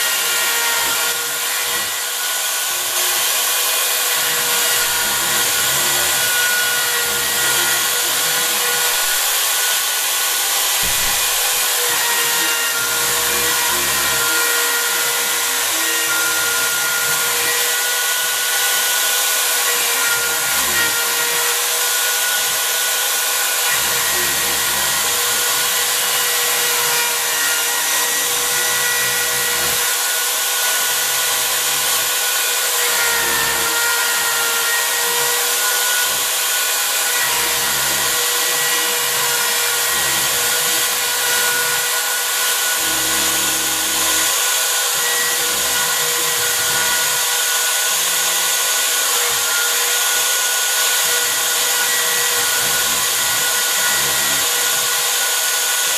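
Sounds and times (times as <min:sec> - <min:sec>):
bit cutting wood rumble: 0:00.0 - 0:55.9
wood router whining: 0:00.0 - 0:55.9.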